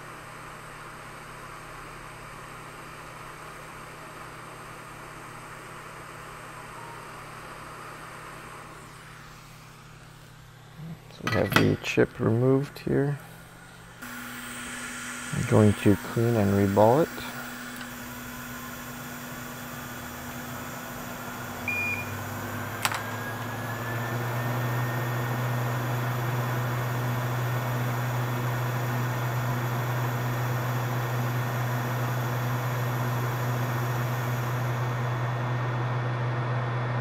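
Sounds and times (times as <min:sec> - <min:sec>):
electric fan motor humming: 0:00.0 - 0:37.0
short beep: 0:21.7 - 0:22.2.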